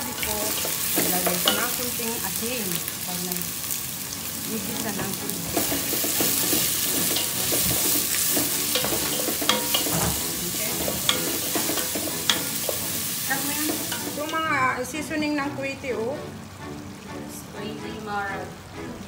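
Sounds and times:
onions sizzling in a pot: 0.0s - 18.5s
wooden spoon stirring and scraping: 5.0s - 12.8s
spoon knocking against pot: 5.5s - 12.8s.

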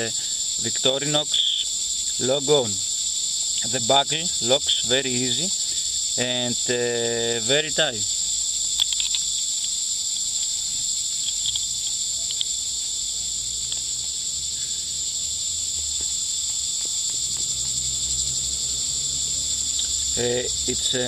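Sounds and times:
insects buzzing chorus: 0.0s - 21.0s
belt buckle clicks: 8.7s - 9.8s.

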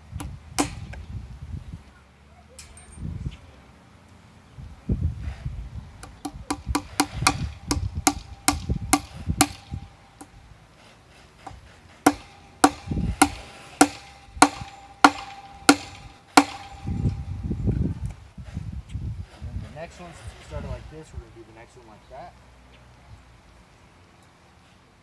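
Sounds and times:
hammer tapping tacks into wood: 6.0s - 10.3s
ringing hammer blows: 6.5s - 10.3s, 11.4s - 17.4s.

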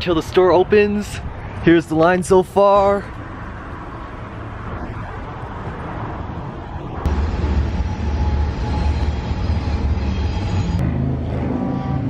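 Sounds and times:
low traffic rumble: 0.0s - 12.0s.

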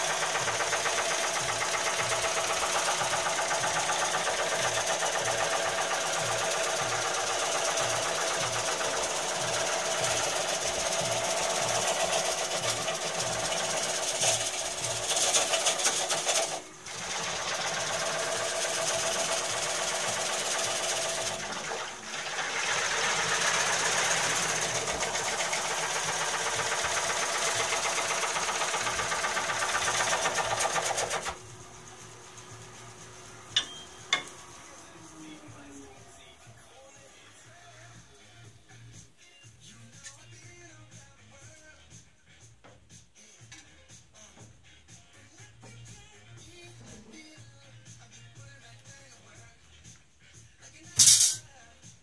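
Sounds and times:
gouge cutting wood on lathe: 0.0s - 36.2s.

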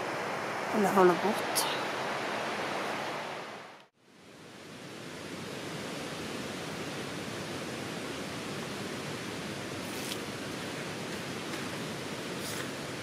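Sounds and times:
steady rushing outdoor noise: 0.0s - 13.0s
faint rustle: 9.8s - 13.0s.

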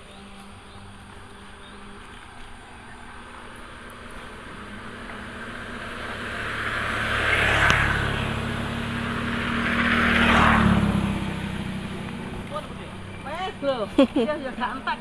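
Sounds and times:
motor scooters passing: 0.0s - 15.0s.

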